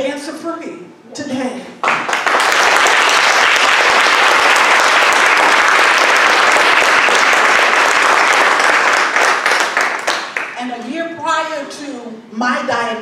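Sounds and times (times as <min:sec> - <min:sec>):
crowd applauding: 0:01.8 - 0:10.6.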